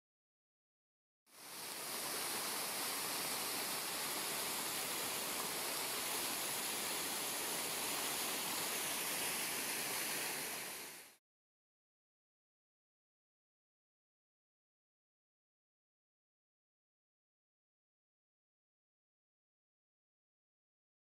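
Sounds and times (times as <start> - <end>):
waterfall rushing: 1.3 - 11.2.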